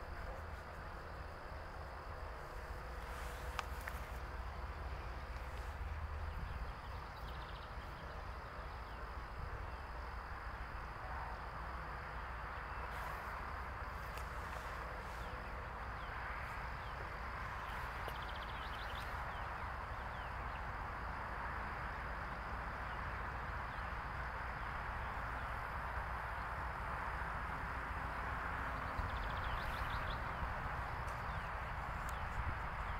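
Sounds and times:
outdoor background hiss: 0.0 - 32.9.

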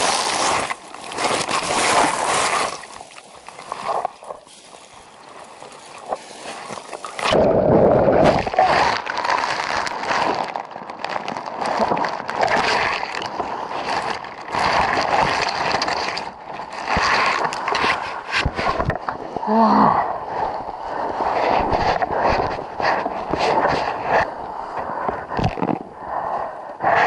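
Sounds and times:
loud splash: 0.0 - 4.1
water churning and sloshing: 0.0 - 27.0.

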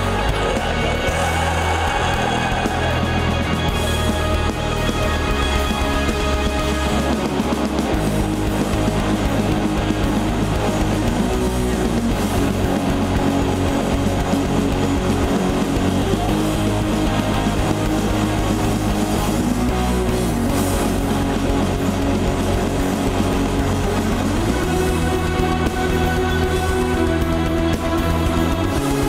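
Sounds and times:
bass guitar: 0.0 - 29.0
distorted electric guitars: 0.0 - 29.0
drums: 0.0 - 29.0.

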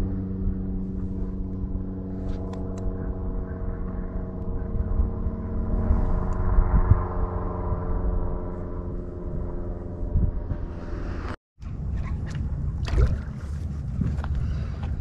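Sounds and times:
small boat motor running: 0.0 - 11.3
wind rumble on microphone: 0.0 - 15.0.

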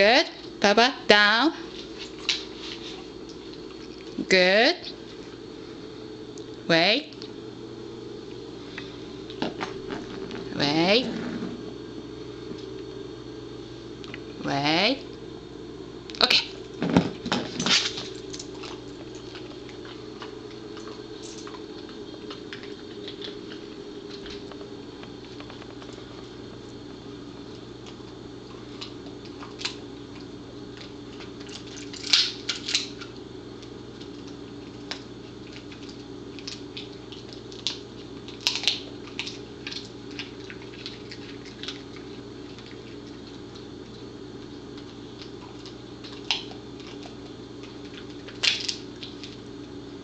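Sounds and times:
steady low hum: 0.0 - 50.0
dog chewing hard treat: 16.9 - 26.3, 34.0 - 44.0, 44.7 - 49.4.

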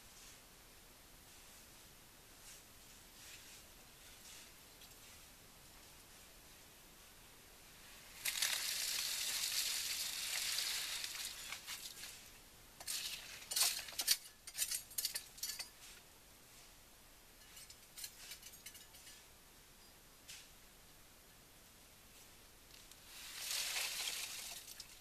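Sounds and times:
wet concrete pouring from bucket: 8.2 - 12.1, 23.2 - 25.0.

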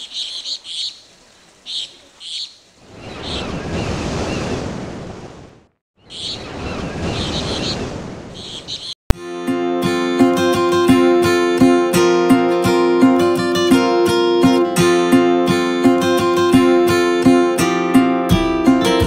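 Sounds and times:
birds chirping: 0.0 - 4.8, 6.0 - 9.0
acoustic guitar music: 9.1 - 19.0.

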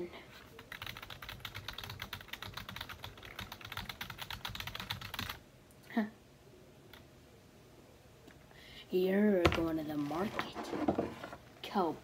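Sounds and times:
typing on a keyboard: 0.6 - 5.4.

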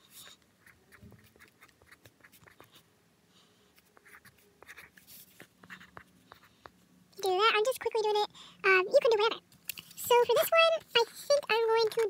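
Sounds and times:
pencil scratching on paper: 0.0 - 2.8, 3.8 - 6.6.

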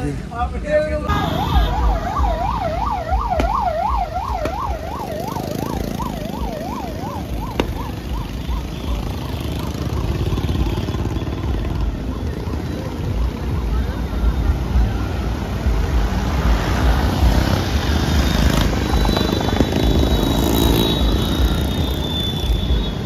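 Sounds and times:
electronic siren warbling: 1.1 - 10.4.

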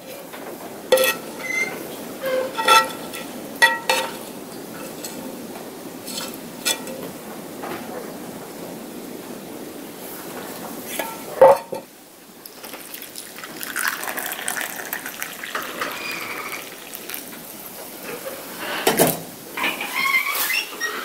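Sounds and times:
liquid pouring into wooden cup: 12.4 - 17.4.

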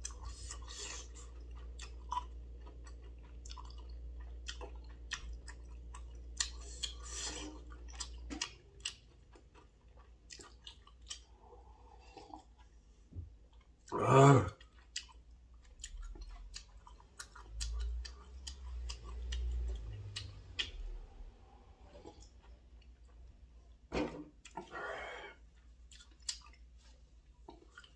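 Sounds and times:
person chewing with wet smacks: 0.0 - 24.7, 25.4 - 27.9
loud throaty vocal sound: 13.9 - 14.6
person drinking broth: 13.9 - 14.6, 24.5 - 25.4.

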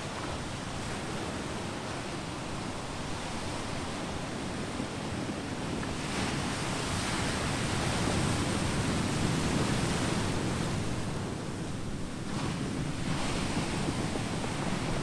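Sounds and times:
ocean surf on boulder beach: 0.0 - 15.0.

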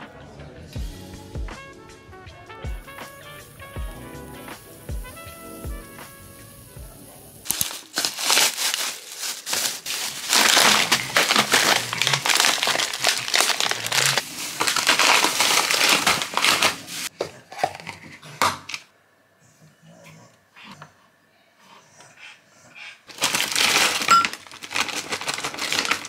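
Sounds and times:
plastic bag crinkling: 7.5 - 18.0, 23.1 - 26.0.

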